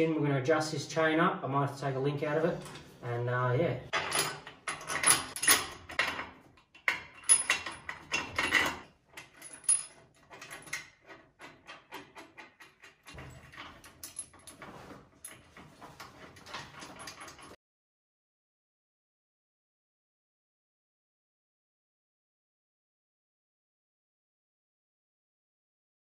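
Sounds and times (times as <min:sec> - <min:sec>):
metal bolts clinking and rattling: 0:03.9 - 0:17.6.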